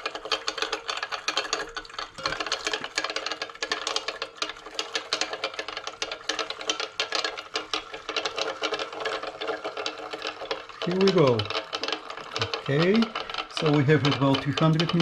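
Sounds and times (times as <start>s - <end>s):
stir bar clattering in glass beaker: 0.0s - 15.0s.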